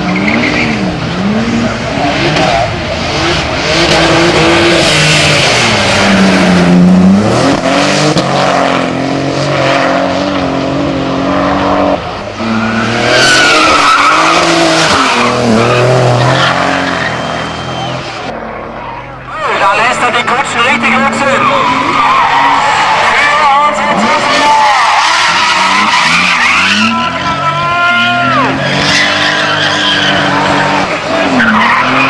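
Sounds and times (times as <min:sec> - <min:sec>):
race car engine revving hard: 0:00.0 - 0:18.3, 0:19.9 - 0:32.0
tyres squealing: 0:12.5 - 0:32.0.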